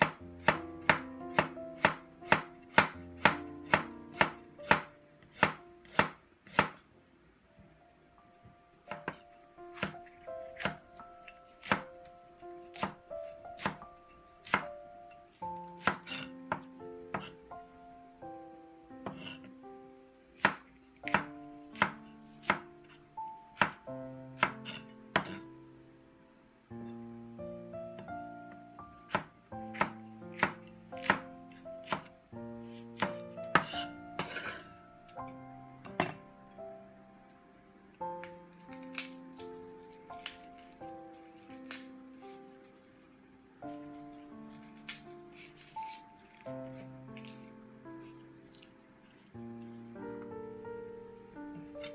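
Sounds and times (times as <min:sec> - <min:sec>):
cleaver chopping on wooden board: 0:00.0 - 0:06.8, 0:09.8 - 0:10.8, 0:11.6 - 0:11.9, 0:13.6 - 0:13.8, 0:15.8 - 0:17.4, 0:20.4 - 0:22.6, 0:24.4 - 0:25.4, 0:29.1 - 0:32.1, 0:33.0 - 0:34.6, 0:44.6 - 0:46.0
soft background music: 0:00.0 - 0:51.9
blade scraping across board: 0:33.6 - 0:34.8.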